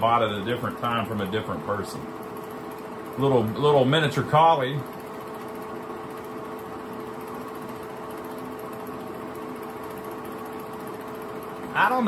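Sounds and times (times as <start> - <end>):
film projector motor hum: 0.0 - 12.0
film transport mechanical chatter: 0.0 - 12.0.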